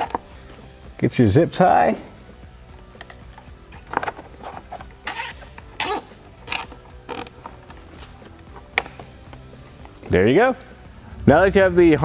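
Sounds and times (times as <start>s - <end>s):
zip tie ratcheting: 4.7s - 10.0s.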